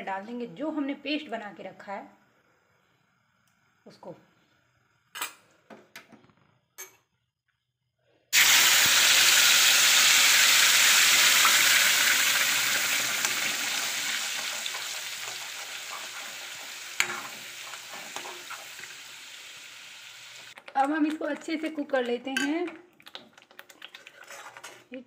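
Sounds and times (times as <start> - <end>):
paste sizzling in hot oil: 8.4 - 21.8, 23.0 - 25.0.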